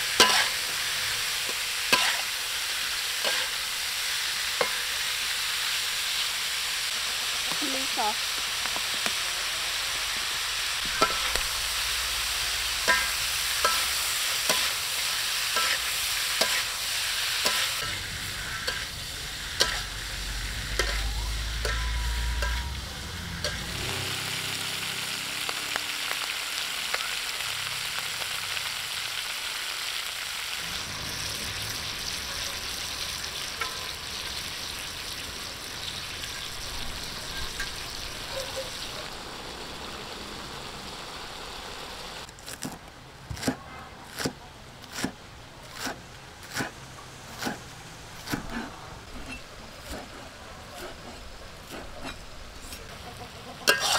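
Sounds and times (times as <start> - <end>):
utensil scraping a wok: 0.0 - 7.3, 8.2 - 24.8, 30.8 - 34.8, 35.7 - 38.9, 43.3 - 53.0, 53.6 - 53.9
food sizzling in a wok: 0.0 - 42.3, 45.0 - 53.9.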